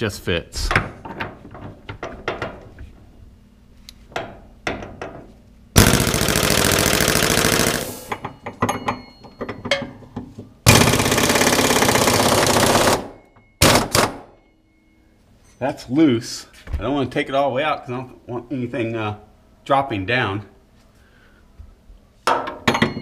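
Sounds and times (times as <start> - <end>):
impact wrench hammering: 5.8 - 10.0, 10.7 - 14.3.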